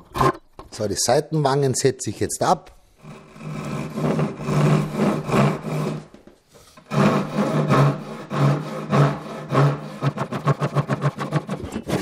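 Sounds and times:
hand saw cutting wood: 3.0 - 6.1, 6.8 - 12.0.

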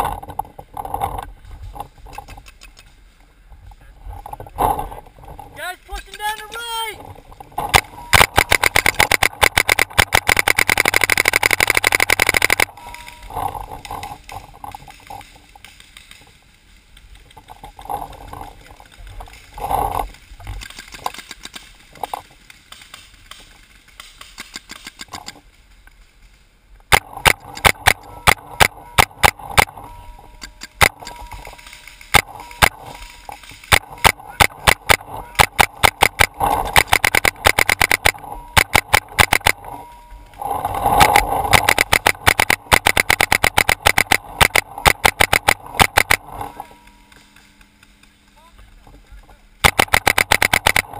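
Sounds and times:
paintball marker firing: 7.6 - 12.7, 26.9 - 29.8, 30.6 - 39.6, 41.0 - 46.5, 49.6 - 50.9.

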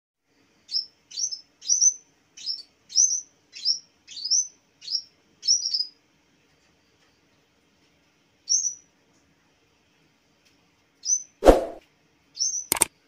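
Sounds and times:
warbler high calls: 0.7 - 6.0, 8.5 - 8.8.

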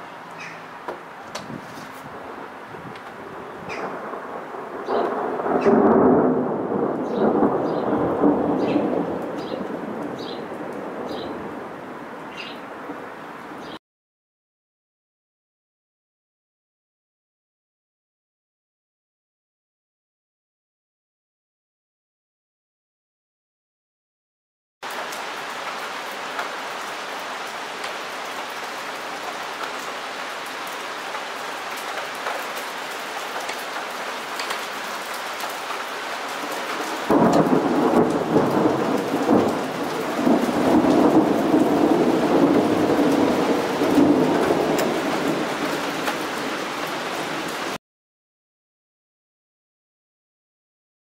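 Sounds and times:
steady rain hiss: 0.0 - 13.8, 24.8 - 47.8
thunderclap and rumbling thunder: 2.8 - 11.8, 36.4 - 47.8.

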